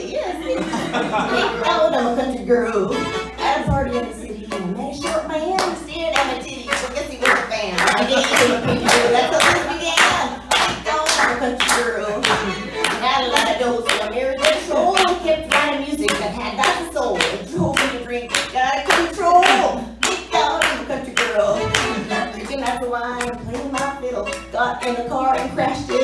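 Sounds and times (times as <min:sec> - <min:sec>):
violin bowed: 0:00.0 - 0:26.0
woman singing: 0:00.0 - 0:26.0
audience clapping along: 0:06.2 - 0:22.6.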